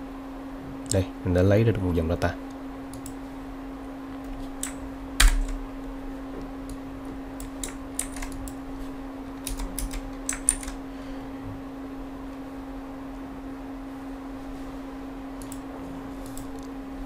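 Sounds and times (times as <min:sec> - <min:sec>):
steady low hum: 0:00.0 - 0:17.0
computer keyboard clicks: 0:04.6 - 0:05.6, 0:07.4 - 0:08.6, 0:09.4 - 0:10.8.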